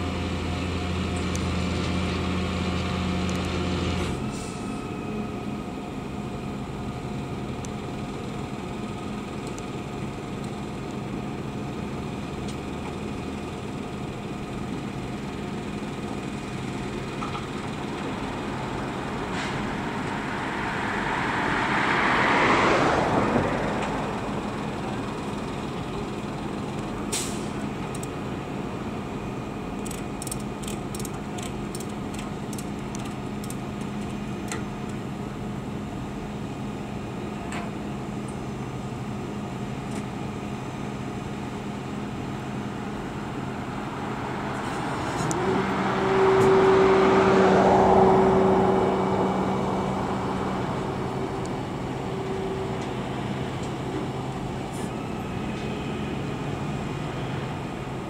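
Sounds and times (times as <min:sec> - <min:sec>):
roadside traffic hum: 0:00.0 - 0:58.0
heavy vehicle passing: 0:17.7 - 0:25.8, 0:42.7 - 0:58.0.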